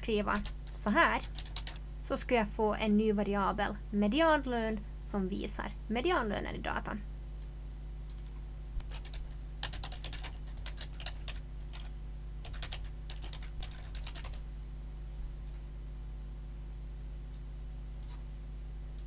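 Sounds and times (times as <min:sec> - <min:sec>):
typing on computer keyboard: 0:01.2 - 0:01.8, 0:08.1 - 0:14.4.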